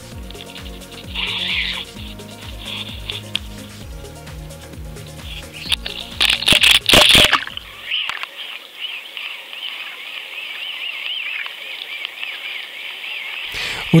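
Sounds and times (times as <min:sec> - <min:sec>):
muffled underwater hiss: 0:00.0 - 0:14.0
camera splashing into water: 0:06.2 - 0:07.6.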